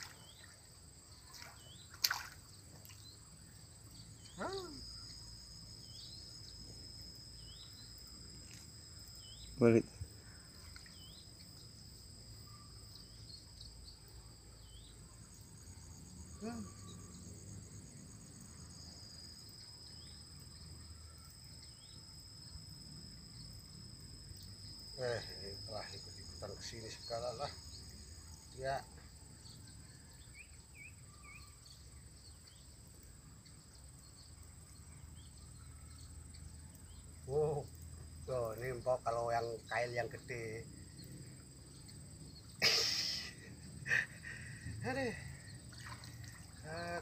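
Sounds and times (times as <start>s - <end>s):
insects chirring: 0.0s - 47.0s.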